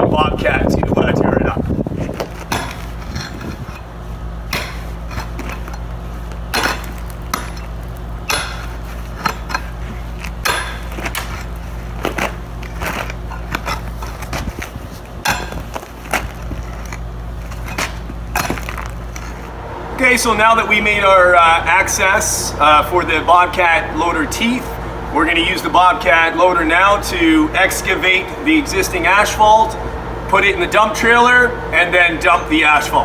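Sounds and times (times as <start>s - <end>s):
steady low hum: 0.0s - 33.0s
pickaxe striking asphalt: 2.2s - 3.5s, 4.5s - 14.6s, 15.2s - 19.3s.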